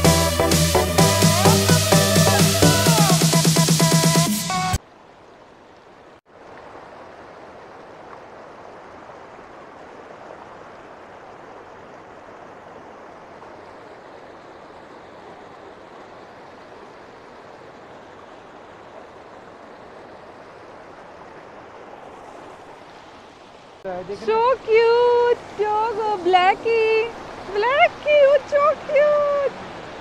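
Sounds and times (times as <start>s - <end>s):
river rushing over boulders: 6.3s - 30.0s.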